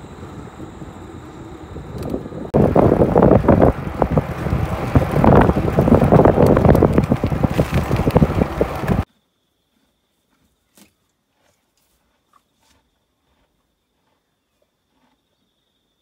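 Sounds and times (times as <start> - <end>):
tyre noise on rough road: 0.0 - 9.1
wind buffeting microphone: 0.0 - 9.1.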